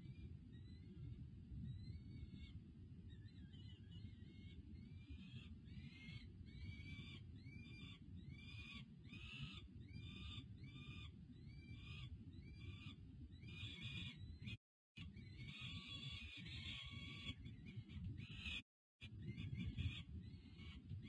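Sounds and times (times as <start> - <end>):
falcon chicks begging calls: 15.1 - 20.9.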